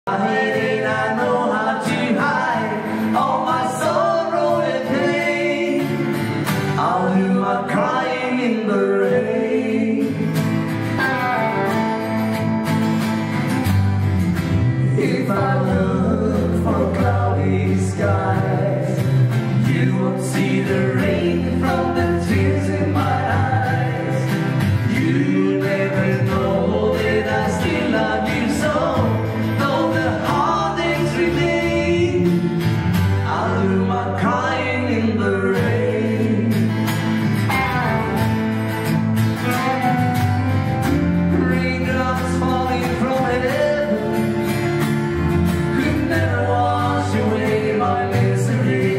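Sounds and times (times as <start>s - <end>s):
two men singing: 0.0s - 11.1s, 14.7s - 37.2s, 41.1s - 48.9s
electric bass: 0.0s - 48.9s
strummed acoustic guitars: 0.0s - 48.9s
drums: 10.0s - 33.6s, 35.5s - 48.9s.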